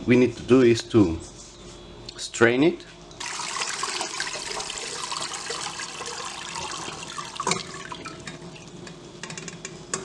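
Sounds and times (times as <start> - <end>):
liquid pouring into a strainer: 3.2 - 8.6.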